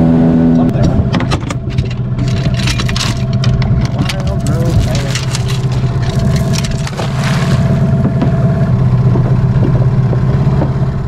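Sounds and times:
outboard motor running: 0.0s - 11.0s
water splashing: 4.0s - 8.5s.

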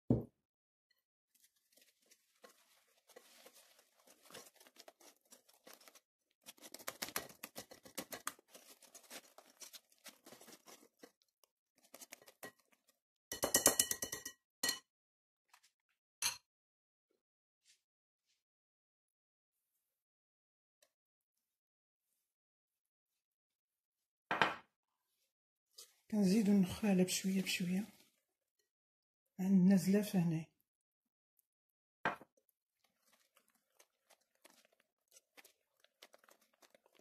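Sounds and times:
whisk scraping in ceramic bowl: 1.7s - 6.0s, 7.1s - 11.2s.

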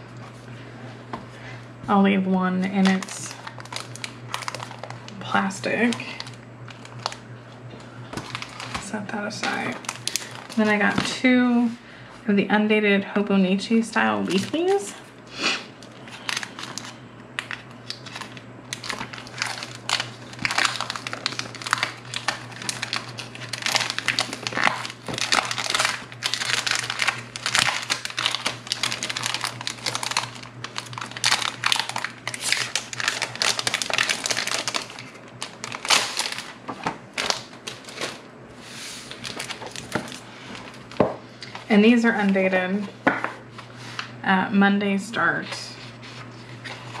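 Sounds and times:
steady low hum: 0.0s - 47.0s
plastic wrapping crinkling: 2.7s - 11.1s, 14.2s - 15.1s, 15.7s - 41.7s.

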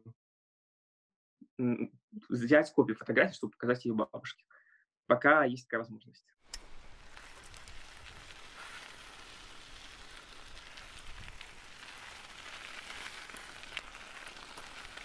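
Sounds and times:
light hiss: 6.5s - 15.0s.

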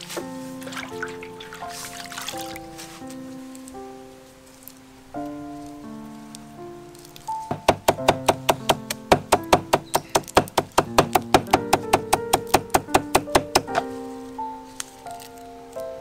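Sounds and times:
soft background music: 0.0s - 16.0s
knife chopping on wooden board: 7.5s - 13.8s.

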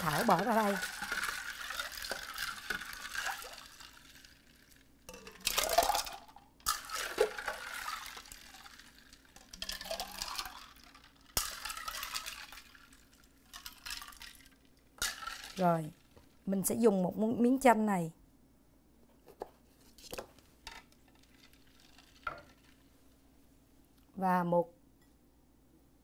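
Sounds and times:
liquid pouring and splashing: 0.0s - 16.4s, 20.1s - 22.9s.

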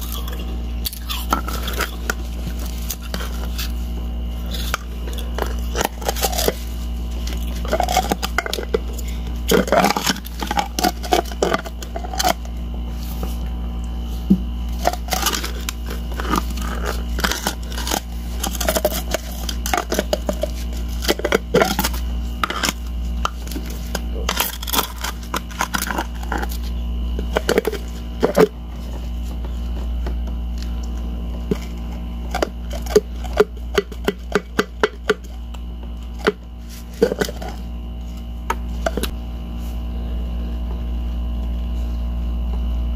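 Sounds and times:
steady low hum: 0.0s - 42.9s
ice shell cracking: 14.8s - 26.6s.

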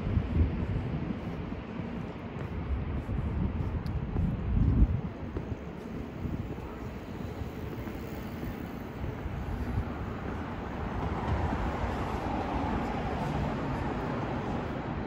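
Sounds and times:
street traffic passing: 0.0s - 15.0s.

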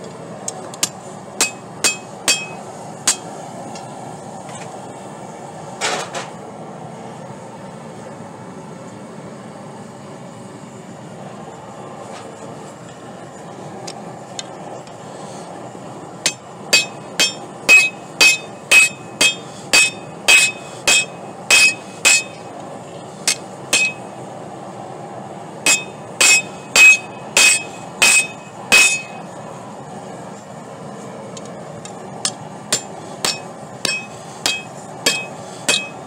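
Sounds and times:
hammer striking metal on anvil: 0.8s - 3.3s, 16.2s - 22.5s, 23.2s - 24.1s, 25.7s - 29.3s, 32.2s - 36.0s.

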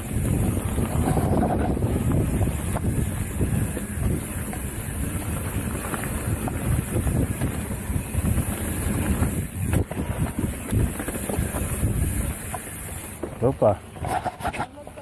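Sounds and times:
wind buffeting microphone: 0.0s - 13.1s
bike rattling and knocking: 0.0s - 15.0s
bike tyres rolling on dirt: 0.0s - 15.0s.

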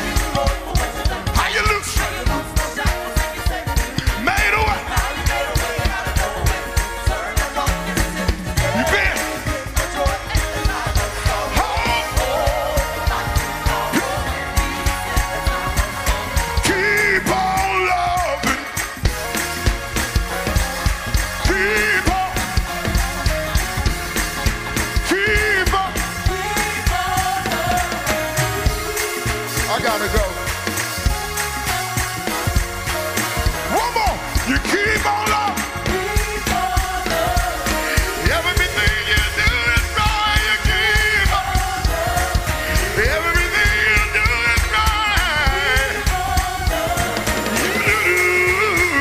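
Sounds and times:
gospel band music: 0.0s - 49.0s
quick drum kit beat: 0.0s - 49.0s
man singing into a microphone: 37.8s - 42.0s, 42.7s - 46.2s, 47.6s - 49.0s.

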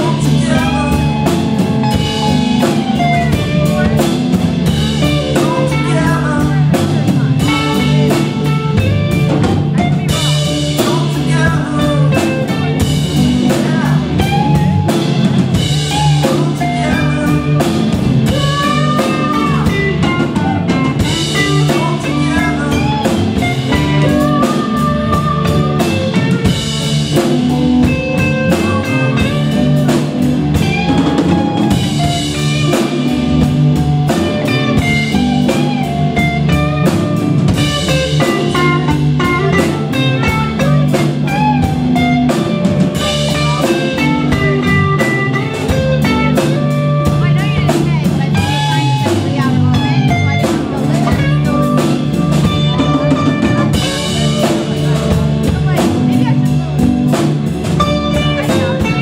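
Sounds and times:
lead guitar bending notes: 0.0s - 59.0s
rock band playing: 0.0s - 59.0s.

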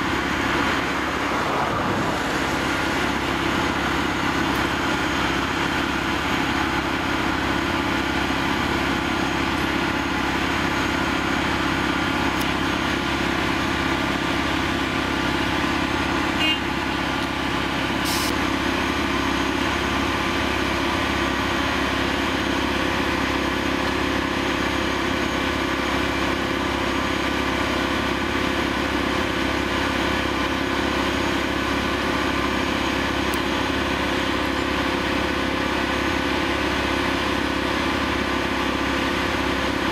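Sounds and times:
diesel engine running: 0.0s - 39.9s
short hiss: 18.0s - 18.3s.

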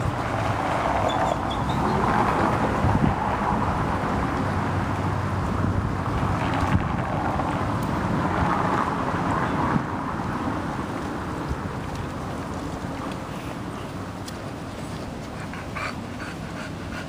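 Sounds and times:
wind rushing over microphone: 0.0s - 15.4s.

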